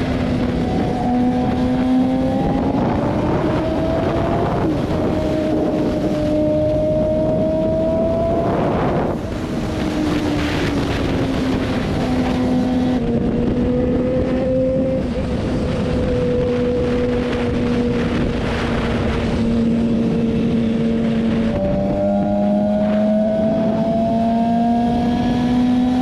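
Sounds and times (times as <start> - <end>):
motorcycle engine cruising: 0.0 - 26.0
wind rushing over microphone: 0.0 - 26.0.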